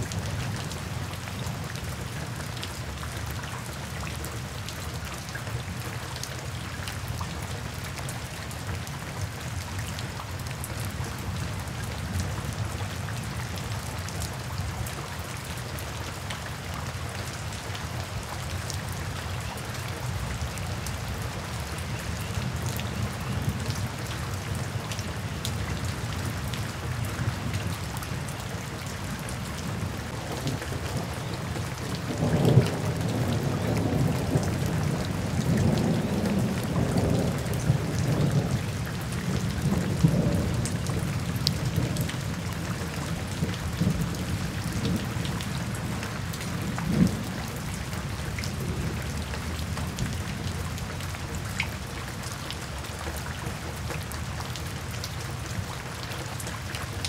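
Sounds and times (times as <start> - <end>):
steady rain in forest: 0.0 - 57.0
rumble of thunder: 43.3 - 47.3.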